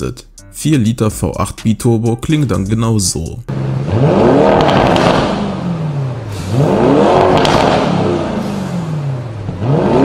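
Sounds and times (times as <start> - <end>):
car engine revving: 3.5 - 10.0.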